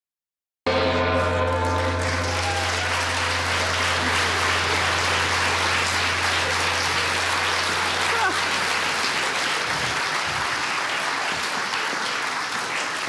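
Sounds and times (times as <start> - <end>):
held chord-like tone: 0.7 - 9.7
audience applauding: 0.8 - 13.0.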